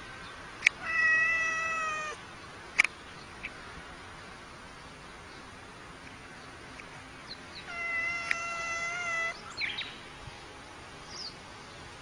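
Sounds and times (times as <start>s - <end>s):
cat yowling: 0.8s - 2.2s, 7.7s - 9.4s.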